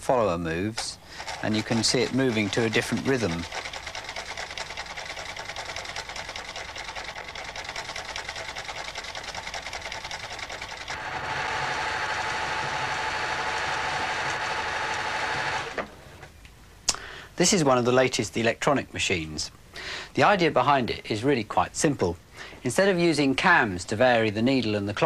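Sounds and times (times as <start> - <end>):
sewing machine running fast: 1.1 - 15.9.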